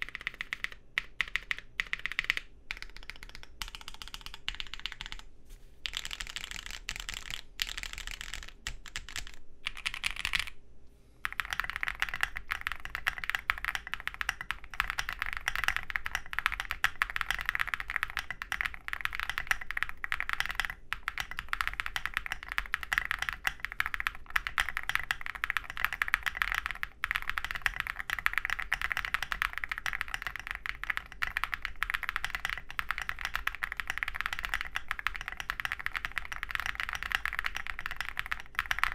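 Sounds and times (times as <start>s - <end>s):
mechanical keyboard typing: 0.0s - 10.6s, 11.2s - 38.9s.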